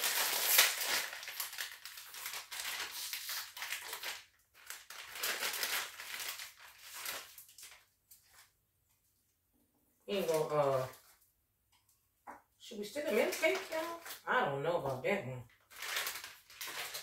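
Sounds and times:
plastic bag crinkling: 0.0 - 8.5, 13.0 - 14.3, 15.5 - 17.0.

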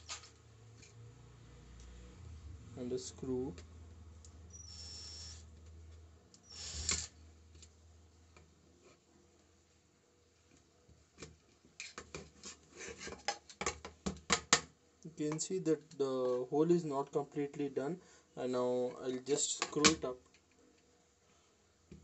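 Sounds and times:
cordless drill whirring: 6.4 - 7.1.

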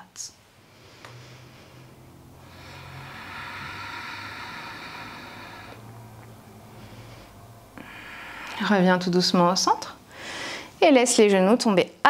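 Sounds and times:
long breath close to microphone: 0.5 - 8.8, 10.0 - 10.8.

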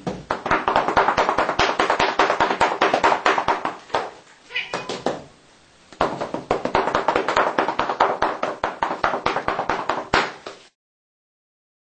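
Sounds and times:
paddles patting a cat: 3.5 - 5.3.

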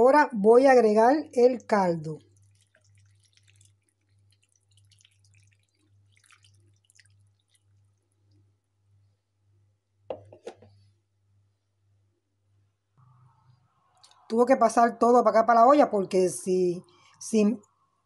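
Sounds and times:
broth trickling into bowl: 2.1 - 8.5, 13.9 - 14.3.

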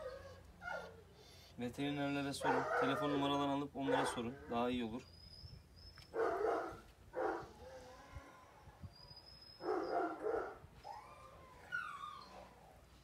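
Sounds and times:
dog barking: 2.4 - 3.2, 3.8 - 4.3, 6.2 - 7.5, 9.6 - 10.6.

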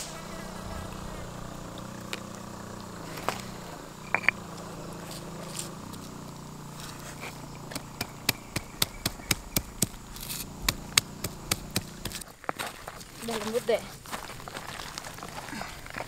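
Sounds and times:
stone pestle pounding in mortar: 7.7 - 10.0.

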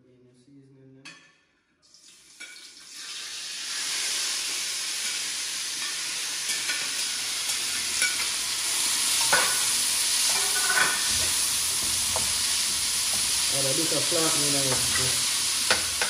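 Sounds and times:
vegetables sizzling in hot oil: 2.1 - 16.0
spatula scraping a pan: 9.0 - 13.5.

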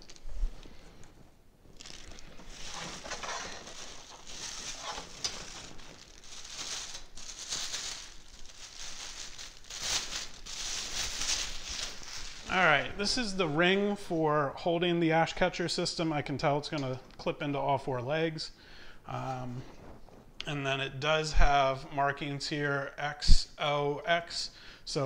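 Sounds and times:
plastic bag crinkling: 0.0 - 13.5.

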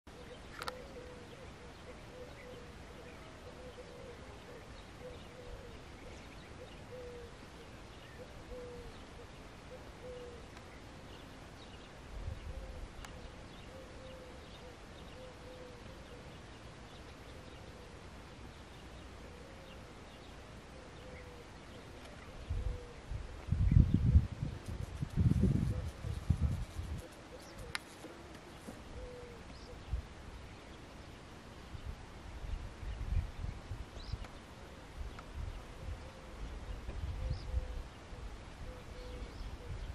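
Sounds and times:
low bird hooting calls: 0.1 - 10.5, 12.4 - 16.4, 19.1 - 20.0, 20.7 - 23.1, 24.7 - 29.9, 35.8 - 39.9.

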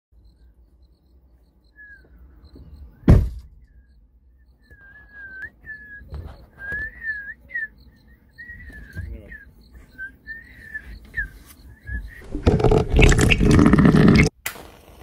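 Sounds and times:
loud sharp thump: 3.0 - 3.7
person whistling a tune: 3.8 - 12.3.

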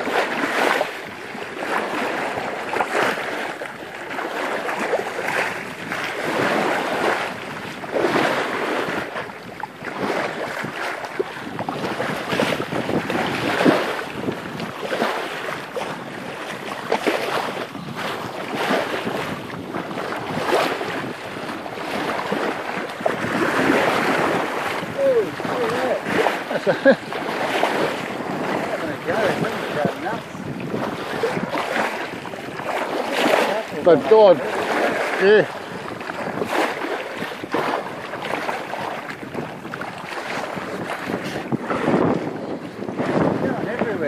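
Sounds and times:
sea water splashing at bow: 0.0 - 44.0
wind buffeting microphone: 0.0 - 44.0.

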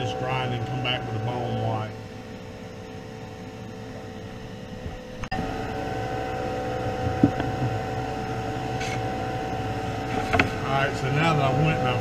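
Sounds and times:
exhaust fan humming: 0.0 - 12.0.

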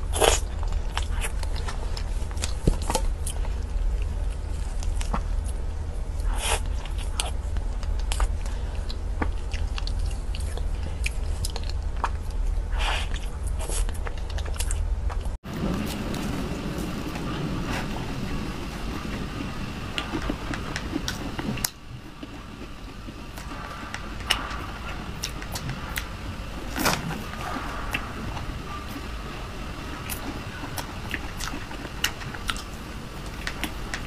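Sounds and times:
close chewing and wet mouth sounds: 0.0 - 34.0
steady low hum: 0.0 - 34.0
lip and tongue clicks: 6.2 - 15.3, 20.0 - 26.1, 30.0 - 34.0.

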